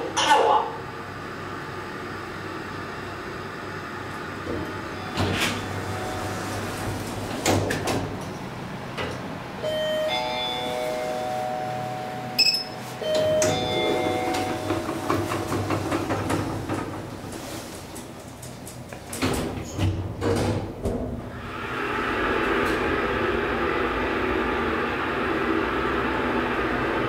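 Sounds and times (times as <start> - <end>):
elevator hum: 0.0 - 27.0
electronic chime: 9.6 - 14.5
elevator clicks: 12.4 - 17.2.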